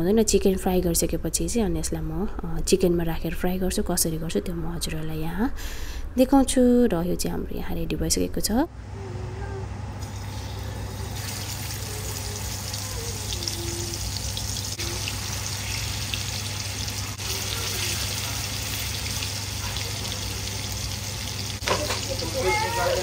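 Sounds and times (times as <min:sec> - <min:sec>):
chicken sizzling in hot oil: 0:10.0 - 0:22.8.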